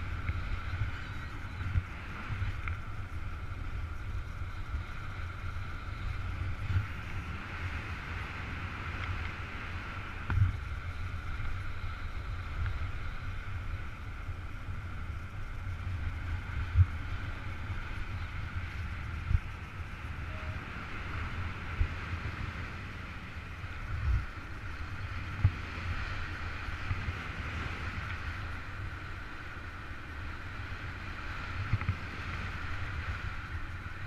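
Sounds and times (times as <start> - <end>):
wind rushing over microphone: 0.0 - 34.0.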